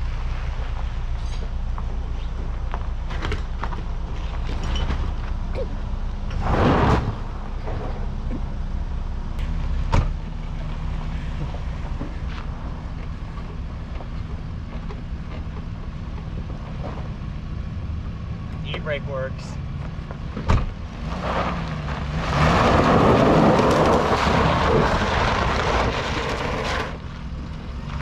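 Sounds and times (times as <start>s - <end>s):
car engine running: 0.0s - 28.0s
tyres on gravel: 18.5s - 28.0s.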